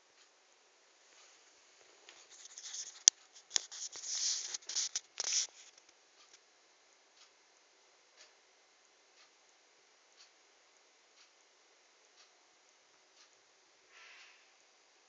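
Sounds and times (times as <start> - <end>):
scratchy rustling against cloth: 2.1 - 5.9.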